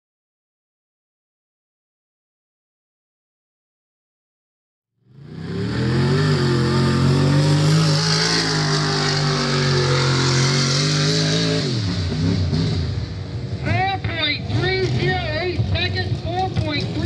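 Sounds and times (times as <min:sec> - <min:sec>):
racing engine at high revs: 0:05.1 - 0:13.2, 0:14.0 - 0:17.0.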